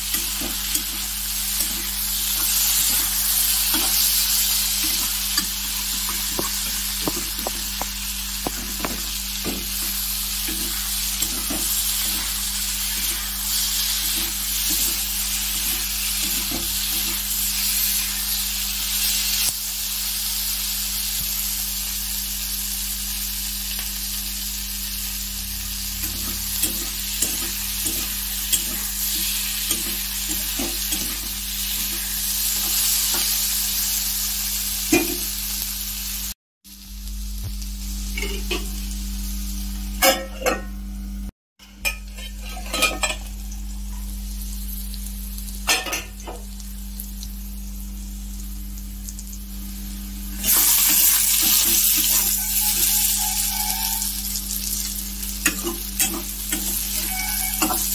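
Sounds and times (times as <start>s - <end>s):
vegetables sizzling in oil: 0.0s - 57.9s
spatula scraping and tapping pan: 4.8s - 12.3s, 41.9s - 43.3s, 55.4s - 57.9s.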